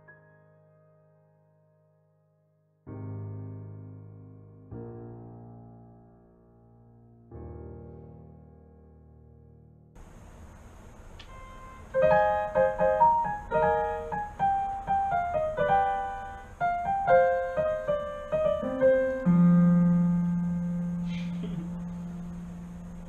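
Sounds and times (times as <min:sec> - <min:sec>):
digital piano notes: 0:11.0 - 0:23.0.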